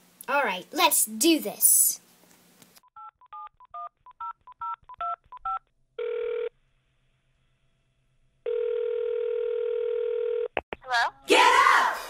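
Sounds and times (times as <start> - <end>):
long telephone tone: 6.0 - 6.5, 8.5 - 10.6.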